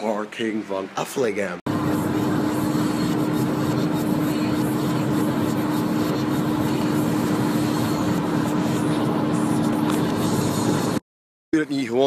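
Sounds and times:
car road and engine noise: 0:01.7 - 0:11.0.

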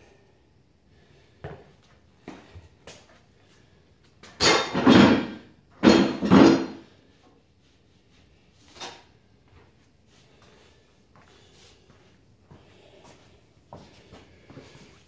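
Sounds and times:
iron dumbbells knocking on wood: 0:04.4 - 0:06.8.

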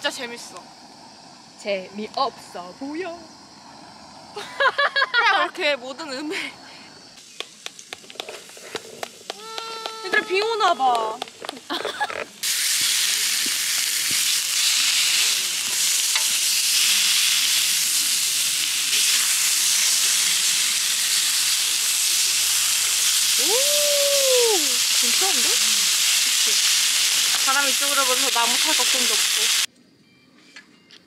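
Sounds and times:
meat sizzling in a pan: 0:11.3 - 0:29.7.

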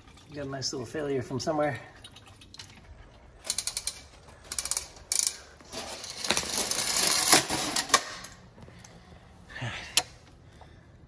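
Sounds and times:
rattling and scraping: 0:03.3 - 0:08.4
hose reel ratcheting: 0:03.4 - 0:08.4.

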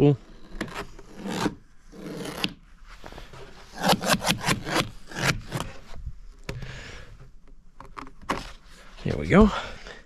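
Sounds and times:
knife scraping screen and wood: 0:00.2 - 0:06.8.

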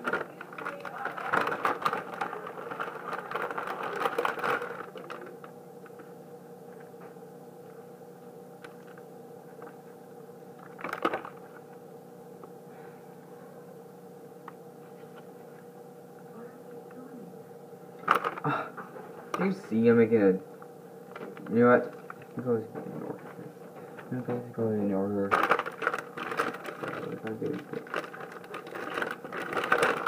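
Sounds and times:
plastic bag crinkling: 0:00.0 - 0:05.6, 0:10.6 - 0:11.6, 0:18.0 - 0:18.6, 0:25.2 - 0:30.0
faint hum: 0:00.0 - 0:30.0.

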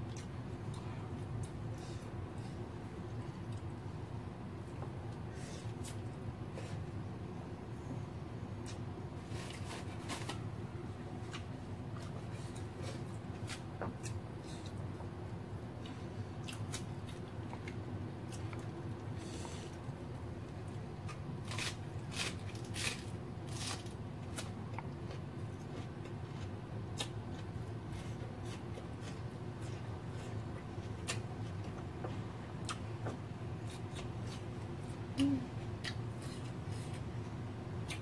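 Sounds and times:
steady low hum: 0:00.0 - 0:38.0
person chewing: 0:21.1 - 0:31.9, 0:35.8 - 0:37.1
person humming: 0:35.2 - 0:35.6.

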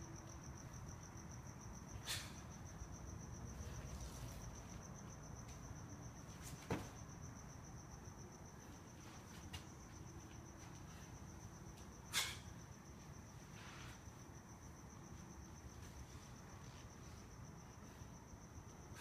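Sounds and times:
foot thudding on floor: 0:06.6 - 0:07.0.

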